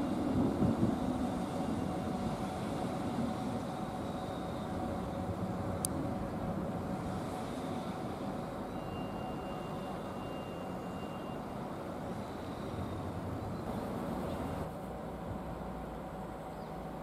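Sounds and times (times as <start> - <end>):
thin high whine: 7.0 - 13.8.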